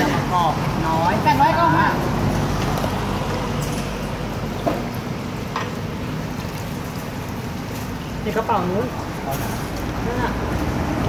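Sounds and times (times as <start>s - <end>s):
low traffic rumble: 0.0s - 11.0s.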